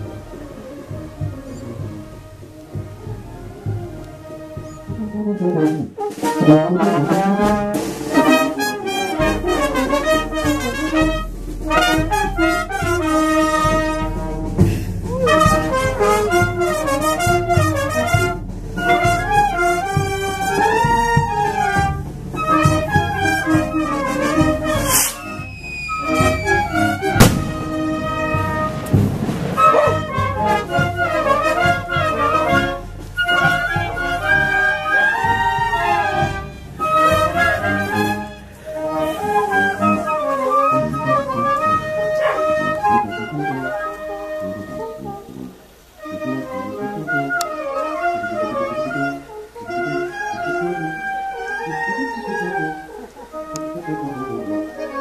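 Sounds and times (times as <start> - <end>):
drum beats: 0.0 - 39.7
brass band playing a tune: 0.0 - 55.0
trumpets and trombones melody: 0.0 - 55.0
low bass notes: 23.1 - 29.3.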